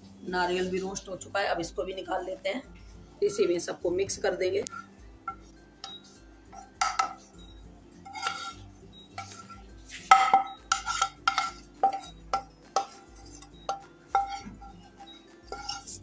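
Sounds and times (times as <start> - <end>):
utensil scraping a cooking pan: 4.6 - 16.0.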